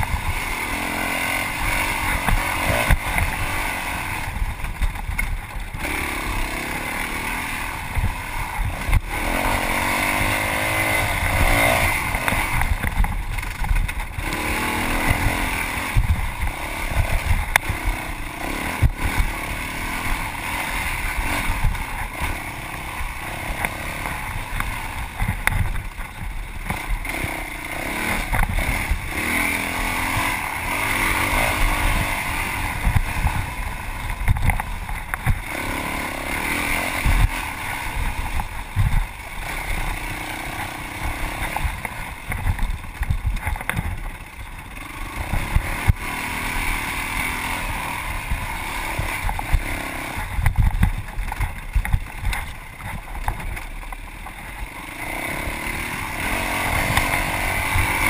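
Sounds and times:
motorcycle engine revving: 0.0s - 58.0s
sharp knocks over rough ground: 1.7s - 5.9s, 7.4s - 18.0s, 18.6s - 27.4s, 28.0s - 40.0s, 40.6s - 44.4s, 48.1s - 54.7s.

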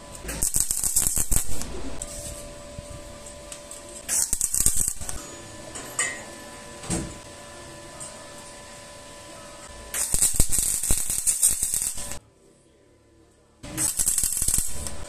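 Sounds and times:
welding arc crackling: 0.0s - 5.8s, 9.6s - 12.2s, 13.6s - 15.0s.

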